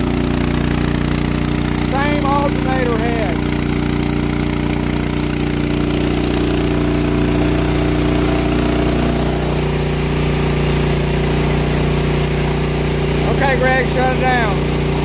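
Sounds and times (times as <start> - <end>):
generator engine running: 0.0 - 15.0.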